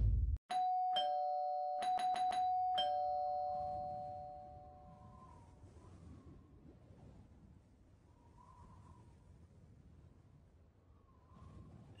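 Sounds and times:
two-note doorbell chime: 0:00.5 - 0:05.0.

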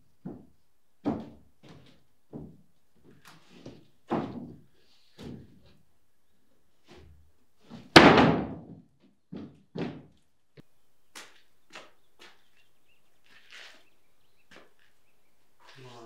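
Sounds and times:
footsteps thudding on wooden boards: 0:00.2 - 0:05.8, 0:06.9 - 0:10.2.

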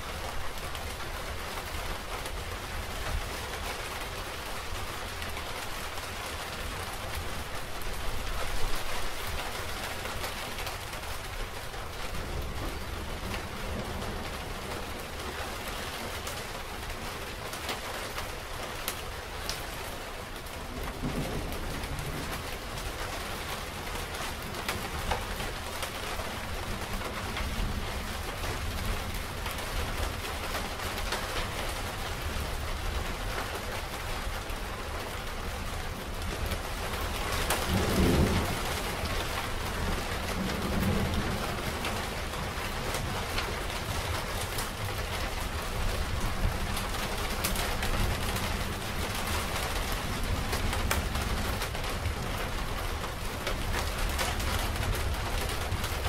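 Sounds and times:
steady rain falling: 0:00.0 - 0:56.0
thunder rumbling: 0:20.6 - 0:23.4, 0:36.3 - 0:56.0.

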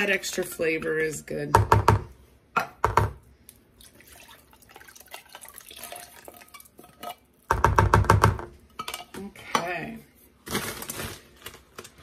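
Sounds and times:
water pouring into bowl: 0:03.8 - 0:06.7.

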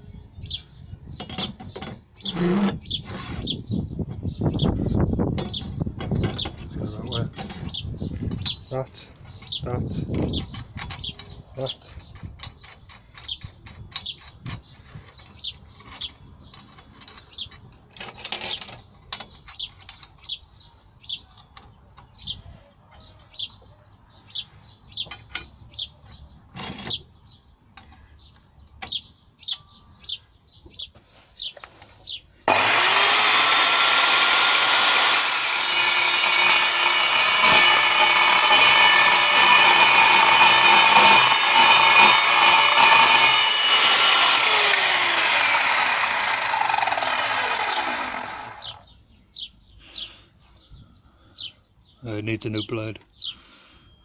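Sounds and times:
small bird chirping: 0:00.0 - 0:32.4, 0:48.6 - 0:54.0
mitre saw whining: 0:32.4 - 0:48.8.

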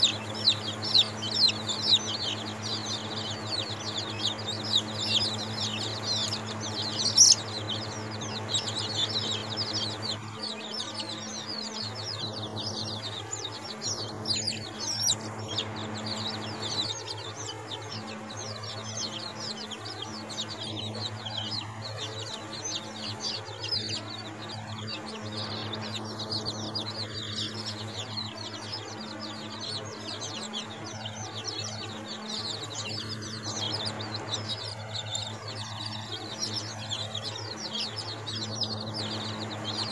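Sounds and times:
chicks peeping: 0:00.0 - 0:39.9
steady low hum: 0:00.0 - 0:39.9.

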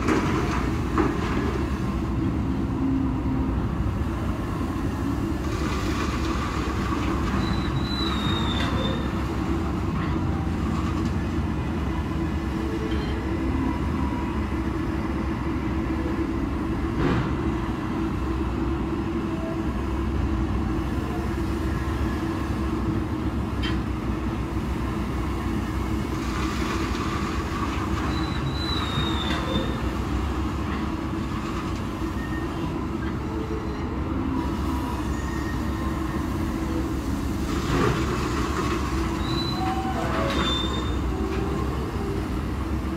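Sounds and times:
high metallic squeals: 0:39.2 - 0:41.1.

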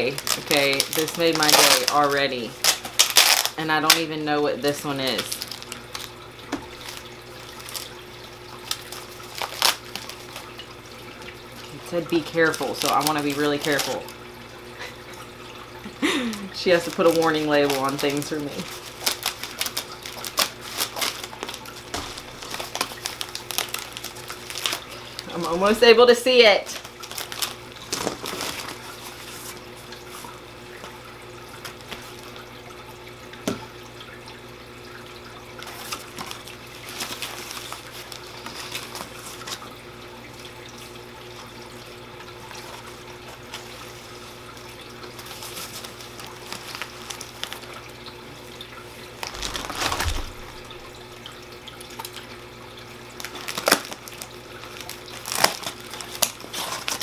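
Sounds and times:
paper packaging rustling: 0:00.0 - 0:04.1, 0:04.7 - 0:10.6, 0:12.4 - 0:14.2, 0:16.7 - 0:25.5, 0:26.7 - 0:30.4, 0:35.6 - 0:39.7, 0:42.5 - 0:47.8, 0:49.2 - 0:51.0, 0:53.2 - 0:57.0
water fountain trickling: 0:00.0 - 0:57.0.

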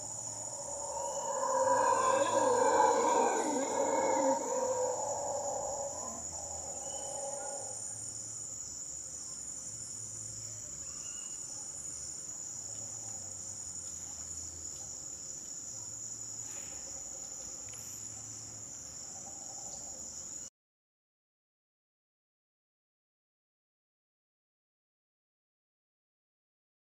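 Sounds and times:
howler monkey howl: 0:00.0 - 0:08.0
insect chorus drone: 0:00.0 - 0:20.5.

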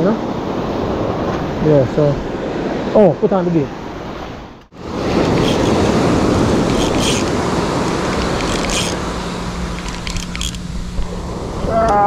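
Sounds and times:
waves breaking on pebbly beach: 0:04.7 - 0:10.5
faint clicks: 0:06.6 - 0:10.6.

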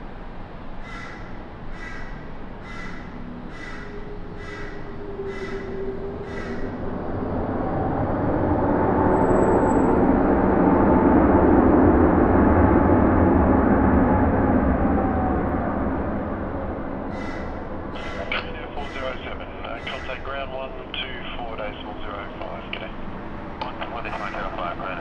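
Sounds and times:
jet engine rumble with whine: 0:00.0 - 0:25.0
bird calling: 0:01.8 - 0:06.7, 0:17.1 - 0:20.2.

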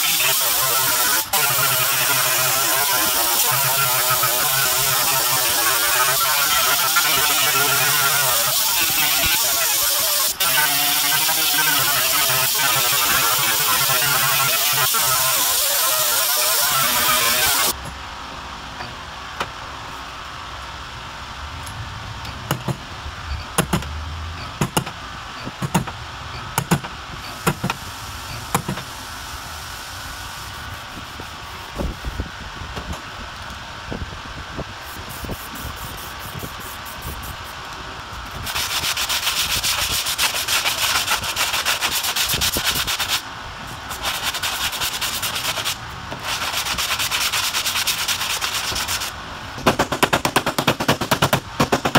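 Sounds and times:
sanding block scraping metal: 0:00.0 - 0:17.7, 0:38.4 - 0:43.2, 0:43.8 - 0:49.2.

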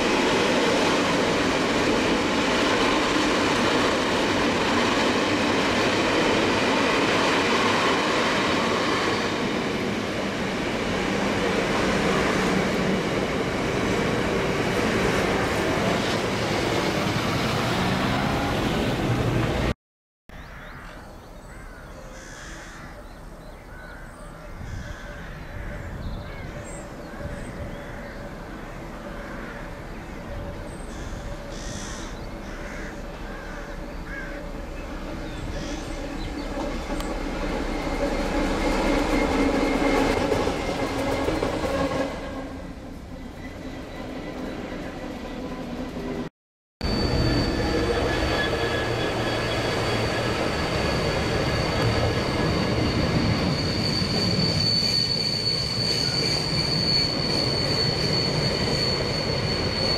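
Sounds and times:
diesel locomotive engine passing: 0:00.0 - 0:19.8, 0:24.3 - 0:59.9
birds calling: 0:20.3 - 0:37.1
freight train wheel squeal: 0:24.2 - 0:59.9.

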